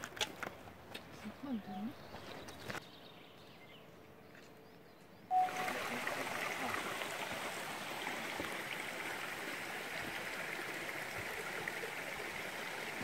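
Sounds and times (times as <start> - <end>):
stream rushing over rocks: 5.3 - 13.0.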